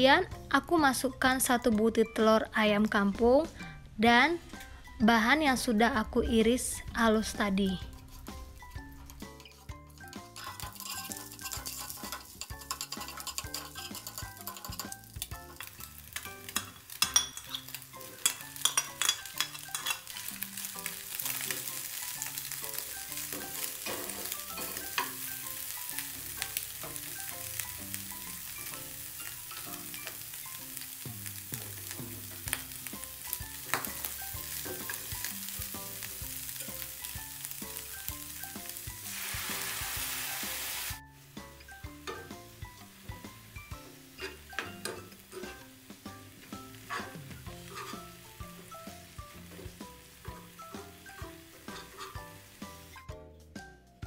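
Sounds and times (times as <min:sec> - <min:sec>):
food sizzling in oil: 0:04.3 - 0:53.0
metal spatula scraping pan: 0:07.8 - 0:30.2, 0:44.0 - 0:45.8, 0:46.7 - 0:48.3, 0:49.4 - 0:53.1
spatula clinks: 0:09.0 - 0:20.4
water poured into hot pan: 0:39.0 - 0:41.0.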